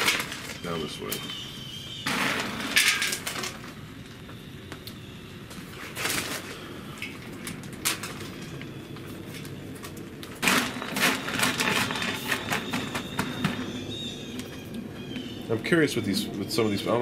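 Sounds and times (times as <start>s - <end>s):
wood pellets clicking and rattling: 9.9s - 13.2s.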